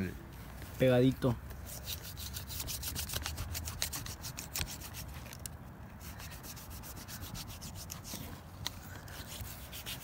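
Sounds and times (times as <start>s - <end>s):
knife sawing through frozen hide: 9.2s - 10.0s.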